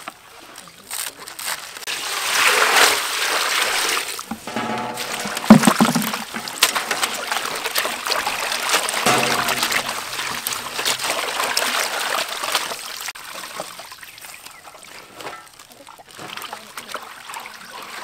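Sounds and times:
water splashing in a metal basin: 2.1s - 13.9s
thump: 4.3s - 7.1s, 9.1s - 11.1s.

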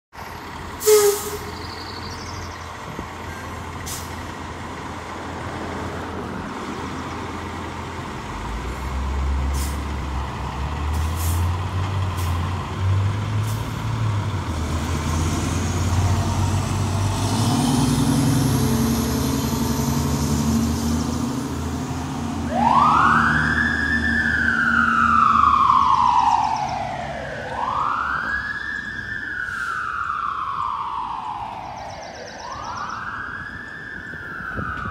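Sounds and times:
fire engine rumbling: 0.1s - 34.9s
air brakes hissing: 0.8s - 1.6s, 3.8s - 4.2s, 9.5s - 10.0s, 11.0s - 11.5s, 29.4s - 29.9s
siren wailing: 22.4s - 34.9s.

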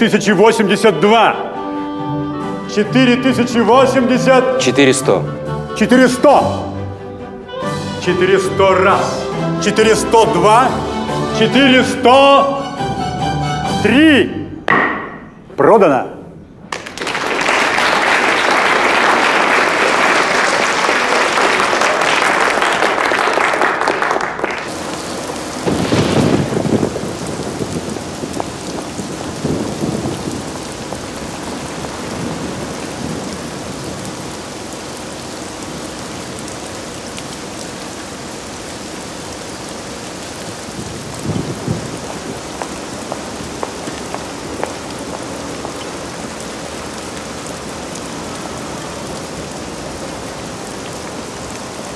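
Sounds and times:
heavy rain: 0.0s - 14.7s, 16.4s - 51.9s
low thunder rumbling: 24.7s - 34.6s, 40.5s - 45.6s.

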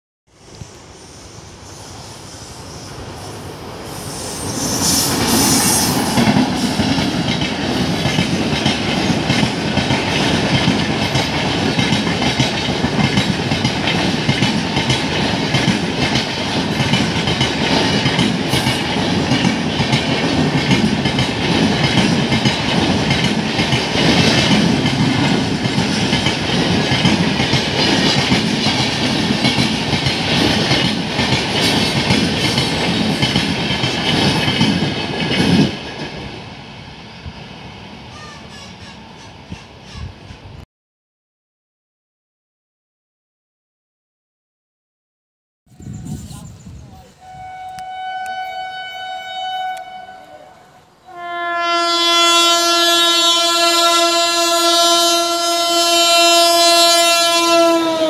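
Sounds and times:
train passing at speed: 0.3s - 40.6s, 45.8s - 58.0s
wheels clickety-clack on rail joints: 6.0s - 36.4s.

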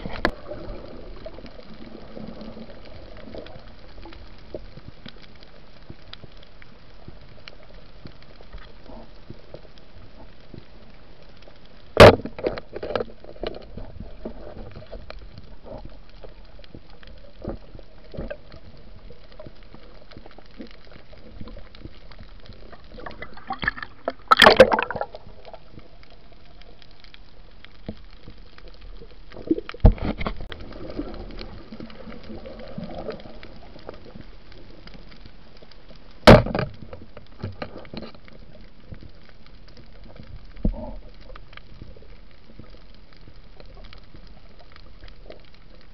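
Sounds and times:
sharp knocks underwater: 12.0s - 14.3s, 23.0s - 25.8s, 29.4s - 31.1s, 36.2s - 38.1s.

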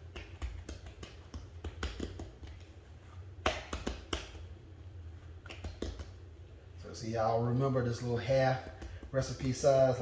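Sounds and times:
hands patting dough: 0.0s - 4.6s, 5.3s - 6.3s, 8.0s - 10.0s.

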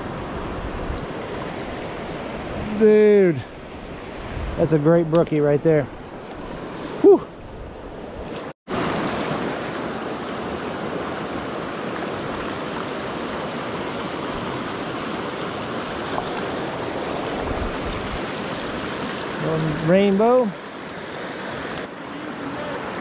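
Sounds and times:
river rushing over rocks: 8.7s - 23.0s.

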